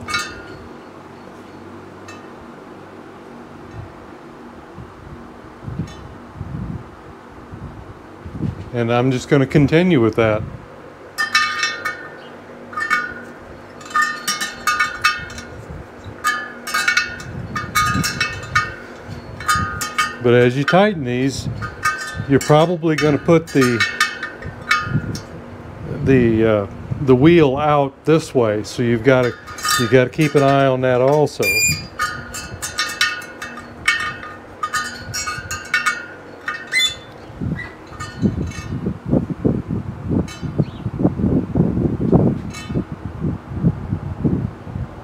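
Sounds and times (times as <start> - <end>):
wire spokes pinging under wrench: 0.0 - 2.4, 11.1 - 26.5, 27.1 - 38.9.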